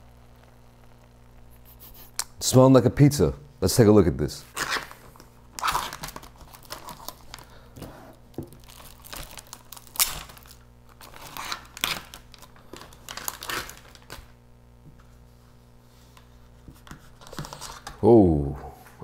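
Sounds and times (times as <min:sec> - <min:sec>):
plastic film crinkling and tearing: 0:04.5 - 0:14.4.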